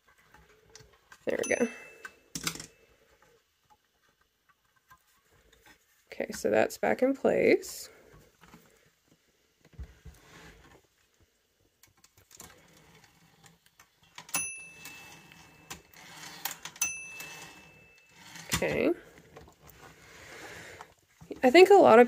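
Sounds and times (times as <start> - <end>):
typewriter bell ding: 1.4 - 2.7, 14.3 - 15.8, 16.8 - 18.4.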